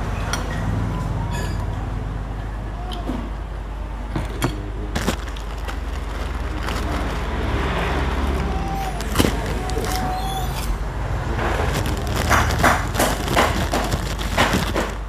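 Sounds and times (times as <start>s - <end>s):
crispy cracker crunching: 4.6s - 15.0s.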